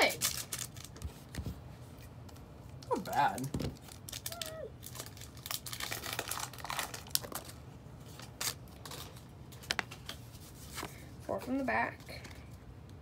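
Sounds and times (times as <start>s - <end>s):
foil wrapper crinkling and tearing: 0.0s - 1.4s, 2.8s - 10.2s.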